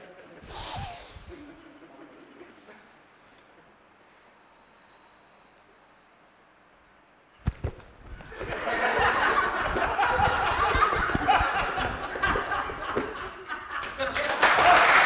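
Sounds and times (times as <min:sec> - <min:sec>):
sharp thumps: 0:07.4 - 0:08.5
crowd laughing: 0:08.2 - 0:15.0.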